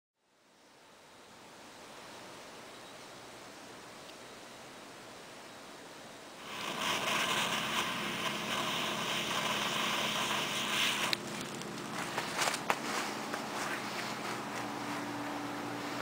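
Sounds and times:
torch lighter hissing: 6.4s - 12.7s
thermite crackling: 6.4s - 15.1s.

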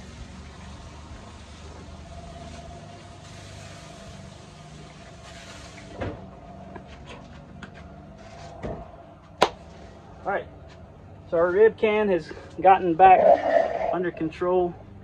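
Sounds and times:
faint constant hum: 0.0s - 15.0s
low outdoor rumble: 0.0s - 15.0s.

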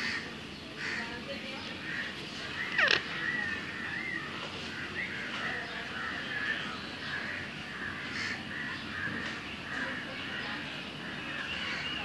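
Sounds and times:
parakeet calling: 1.8s - 4.2s.

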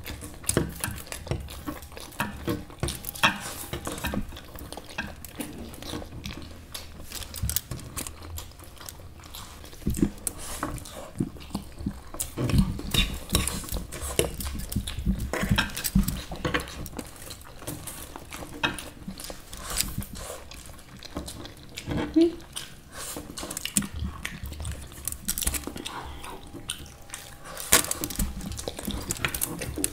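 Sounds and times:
chewing: 0.0s - 29.9s.

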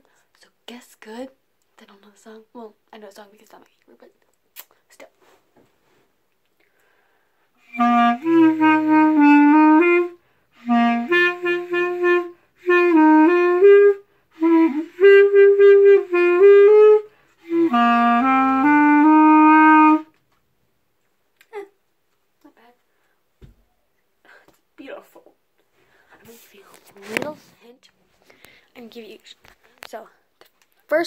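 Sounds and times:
clarinet melody: 7.6s - 20.2s.

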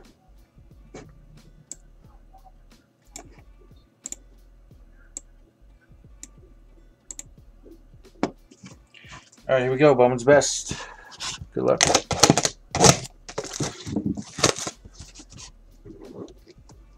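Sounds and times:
keyboard and mouse clicks: 7.1s - 7.3s.

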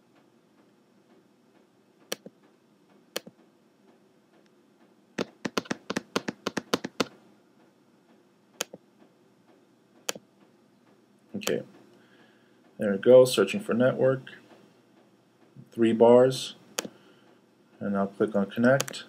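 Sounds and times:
keyboard key taps: 5.2s - 7.2s
trackpad clicks: 5.2s - 7.2s.

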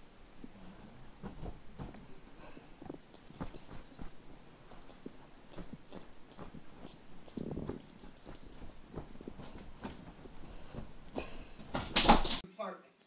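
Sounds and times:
small bird chirping: 3.1s - 8.8s.

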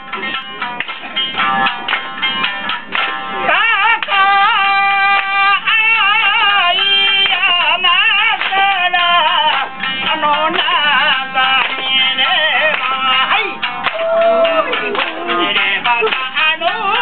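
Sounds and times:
shamisen plucked: 0.0s - 17.0s
person singing: 3.4s - 17.0s.

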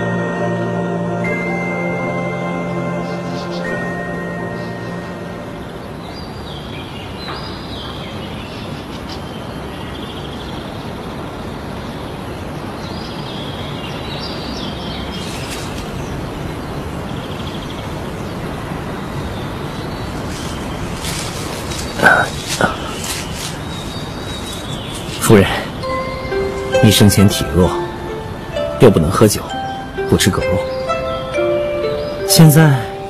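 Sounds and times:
music: 0.0s - 6.2s, 25.2s - 33.0s
steady rushing hiss: 0.0s - 33.0s
bird chirps: 2.9s - 11.0s, 12.0s - 33.0s.

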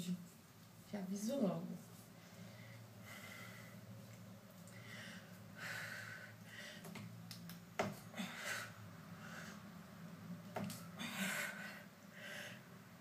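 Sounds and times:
woman breathing hard: 2.2s - 3.9s, 4.7s - 7.0s, 8.1s - 9.8s, 10.9s - 12.8s.

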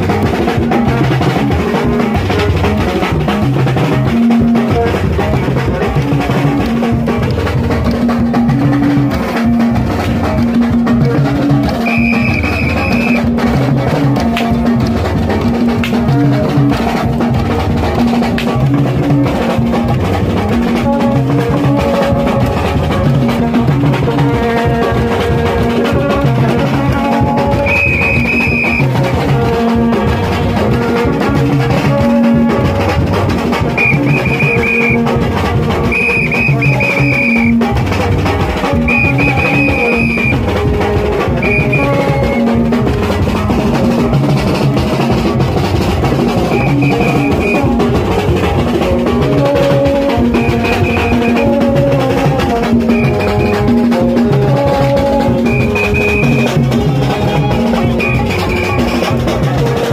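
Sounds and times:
hand-beaten drums: 0.0s - 59.9s
tube trumpets held notes: 11.6s - 14.8s, 20.8s - 37.9s, 38.5s - 43.6s, 46.2s - 59.3s
shrill high note: 11.8s - 13.2s, 27.6s - 28.9s, 33.8s - 35.1s, 35.9s - 37.6s, 38.9s - 40.4s, 50.4s - 51.5s, 55.4s - 56.6s.

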